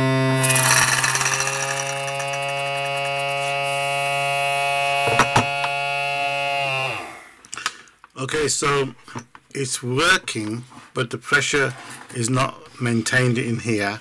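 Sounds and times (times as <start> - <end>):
air pump humming: 0.4 - 7.4.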